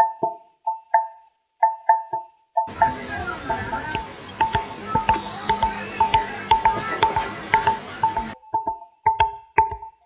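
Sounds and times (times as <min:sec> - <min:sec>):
steady background noise: 0:02.7 - 0:08.4.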